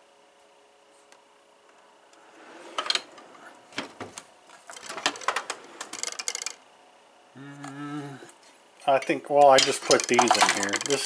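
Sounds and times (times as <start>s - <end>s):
metal tools clinking in toolbox: 8.9s - 11.0s.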